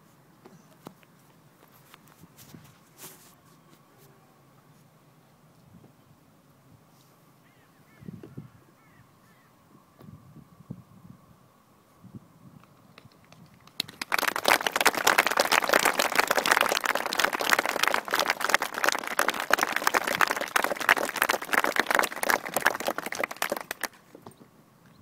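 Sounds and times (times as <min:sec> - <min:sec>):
crowd applauding: 0:13.7 - 0:24.0.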